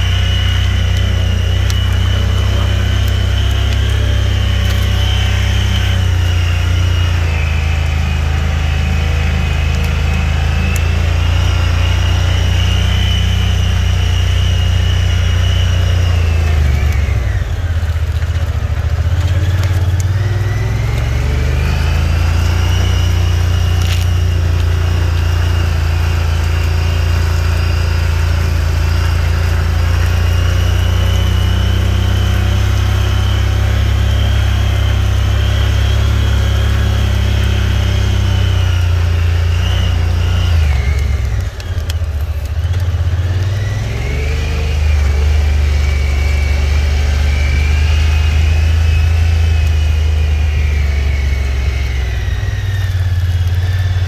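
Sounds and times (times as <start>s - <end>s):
off-road vehicle engine: 0.0s - 54.0s.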